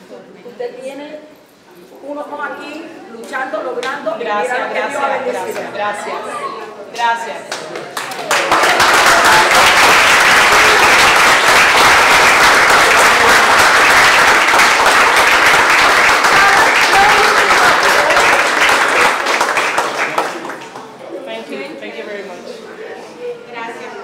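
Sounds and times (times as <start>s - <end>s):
crowd applauding: 7.5s - 21.0s
excited voices: 8.1s - 19.3s.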